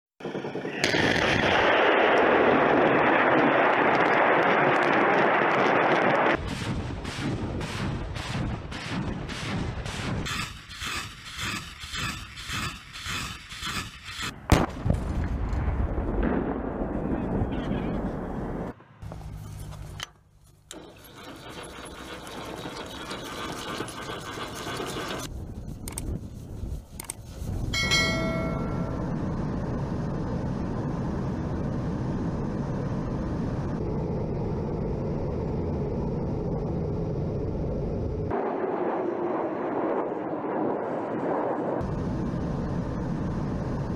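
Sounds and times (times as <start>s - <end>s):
rockets launching in rapid series: 0.2s - 18.8s, 28.8s - 43.9s
jets flying over: 0.2s - 19.8s, 27.2s - 43.9s.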